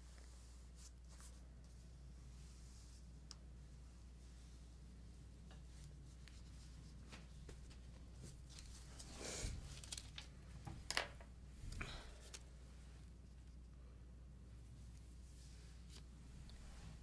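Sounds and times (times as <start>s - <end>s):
low room hum: 0.0s - 17.0s
paper rustling: 6.3s - 11.2s.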